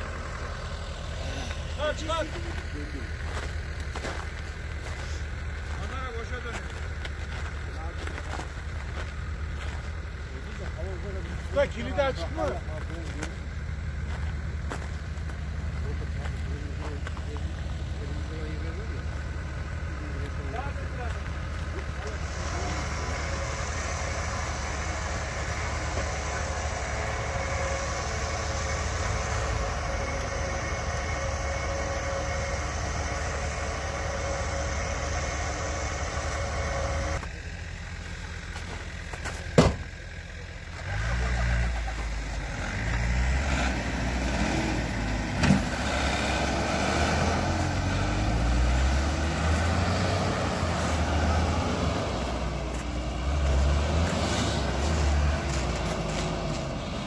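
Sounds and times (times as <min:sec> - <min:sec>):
engine revving: 0:00.0 - 0:57.0
vehicle engine running: 0:00.0 - 0:57.0
sharp knock: 0:39.6 - 0:39.8.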